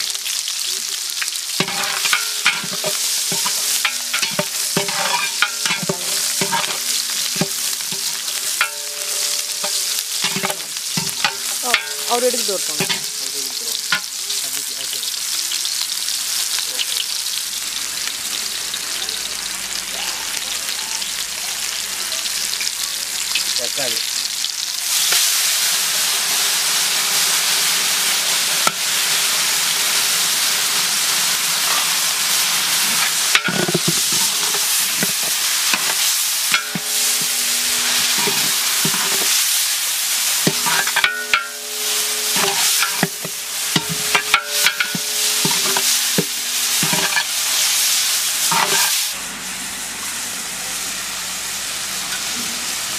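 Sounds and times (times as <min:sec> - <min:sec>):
food sizzling in hot oil: 0:00.0 - 0:52.9
metal spatula scraping and clanking pot: 0:01.5 - 0:14.2, 0:31.6 - 0:49.2.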